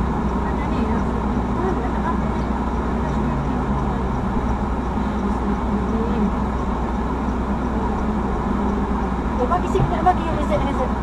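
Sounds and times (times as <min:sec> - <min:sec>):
car driving at highway speed: 0:00.0 - 0:11.0.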